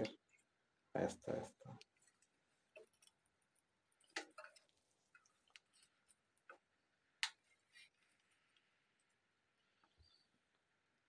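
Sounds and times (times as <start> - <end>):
faint sharp clicks and taps: 4.0 - 9.2.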